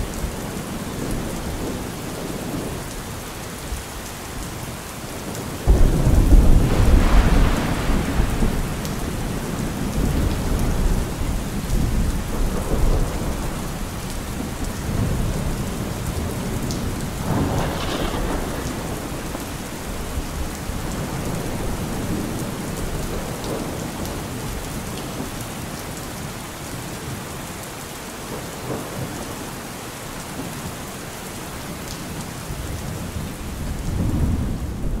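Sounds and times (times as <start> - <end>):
steady rain: 0.0 - 35.0
rolling thunder: 5.2 - 24.6, 32.6 - 35.0.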